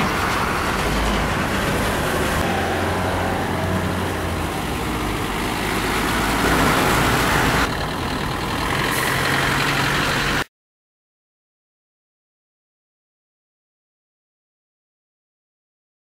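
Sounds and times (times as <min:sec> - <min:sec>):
bus engines droning: 0:00.0 - 0:10.5.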